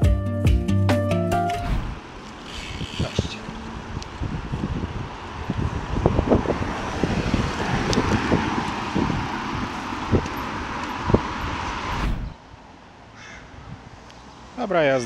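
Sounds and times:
low thumps from gusts: 1.5 - 2.2, 3.0 - 12.5
wind buffeting microphone: 1.7 - 12.7.

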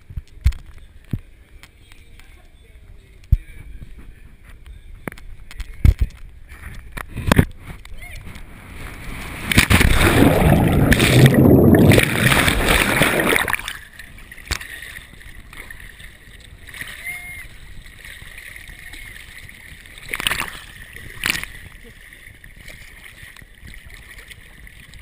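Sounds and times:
water lapping: 8.4 - 25.0
underwater bubbling: 8.5 - 25.0
loud splash: 9.0 - 13.8
sharp splashes: 9.0 - 25.0.

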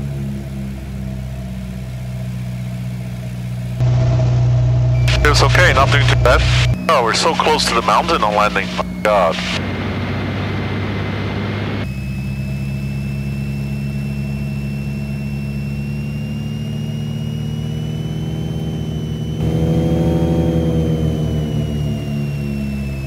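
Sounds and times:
propeller aircraft engines droning: 0.0 - 23.0
thin high whine: 3.8 - 23.0.

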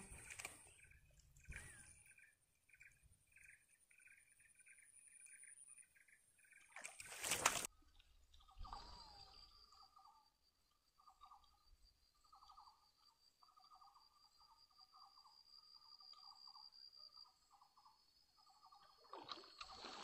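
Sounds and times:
insect pulsing trills: 8.4 - 20.0
insect whine: 8.4 - 20.0.

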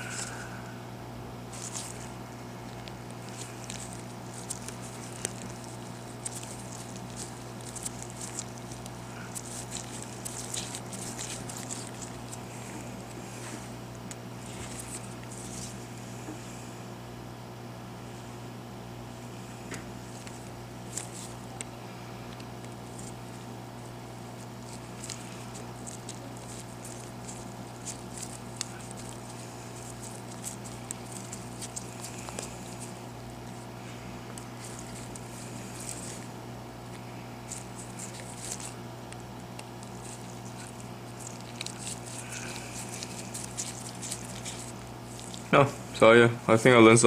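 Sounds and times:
hot air station humming: 0.0 - 47.0
screwdriver ticking and scratching: 1.6 - 13.2, 22.6 - 33.7, 37.4 - 45.5.

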